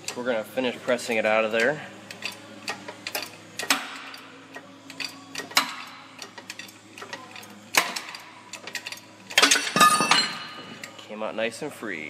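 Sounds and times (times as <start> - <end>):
shop press ticks and creaks: 0.0 - 0.2, 1.6 - 9.7.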